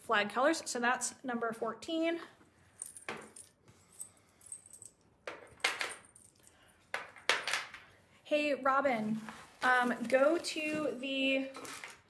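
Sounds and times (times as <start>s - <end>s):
beads clinking and rattling: 2.8s - 7.8s.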